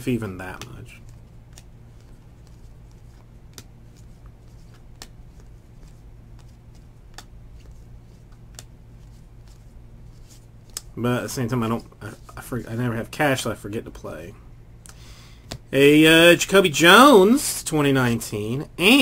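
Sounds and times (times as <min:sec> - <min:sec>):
steady low hum: 0:00.0 - 0:19.0
trading cards clicking: 0:00.6 - 0:08.7.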